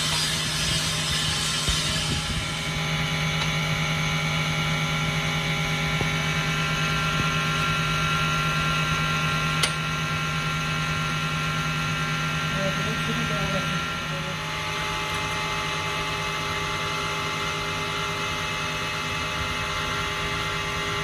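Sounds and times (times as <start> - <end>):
workshop machine humming and whining: 0.0 - 21.0
sharp click: 9.6 - 9.8.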